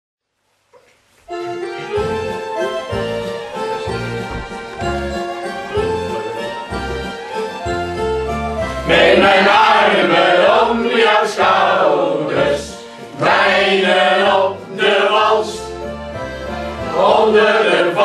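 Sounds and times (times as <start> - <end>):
group singing: 8.8 - 15.9, 16.5 - 18.0.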